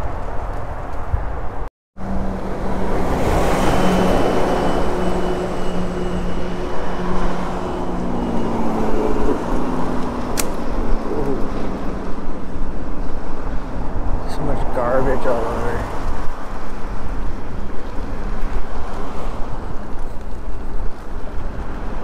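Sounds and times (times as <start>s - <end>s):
wind and road noise: 0.0s - 22.0s
sharp click: 10.3s - 10.8s.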